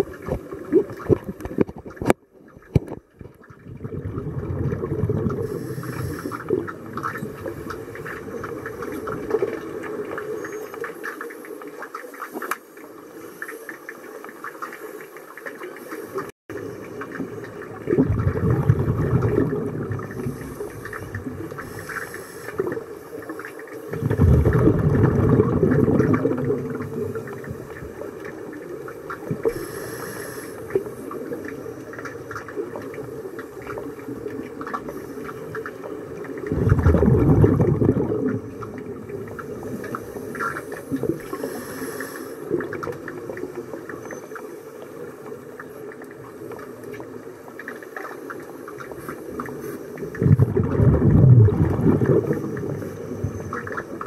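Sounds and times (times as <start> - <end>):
rumbling bursts of exhaled bubbles: 0.0 - 10.4, 16.5 - 23.0, 23.9 - 41.6, 48.8 - 54.0
crackle of underwater bubbles: 0.0 - 54.0.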